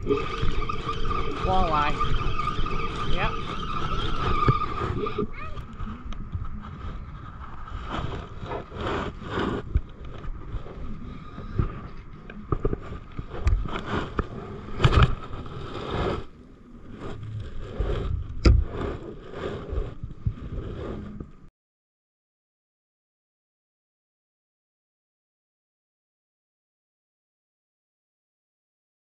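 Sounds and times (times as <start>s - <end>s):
wind buffeting: 0.0s - 21.2s.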